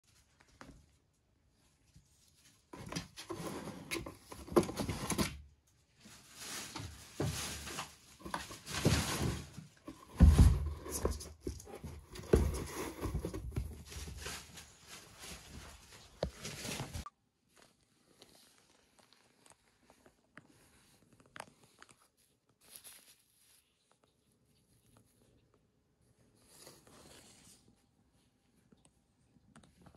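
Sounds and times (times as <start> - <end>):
scratching and rustling cardboard: 2.4 - 5.4, 6.0 - 17.1.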